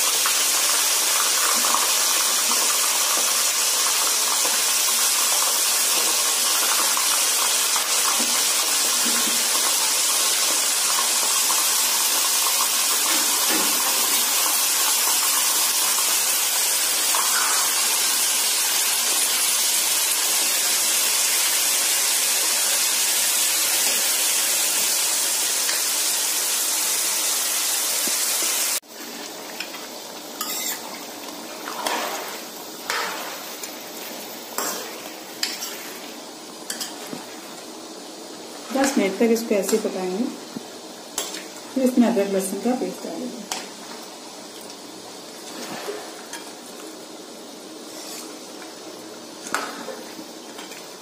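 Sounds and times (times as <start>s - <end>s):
meat sizzling in hot oil: 0.0s - 51.0s
metal ladle scraping a pan: 30.4s - 30.8s, 47.9s - 48.4s.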